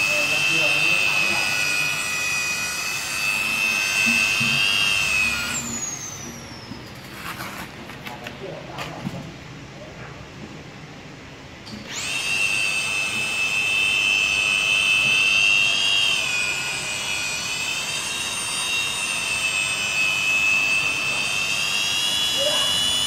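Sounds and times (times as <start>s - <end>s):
electric polisher motor whine: 0.0s - 6.9s, 11.7s - 23.0s.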